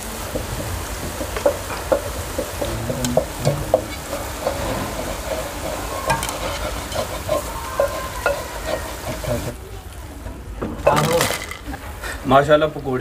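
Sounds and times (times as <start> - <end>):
wire skimmer stirring oil: 0.0 - 9.6
food deep-frying in oil: 0.0 - 13.0.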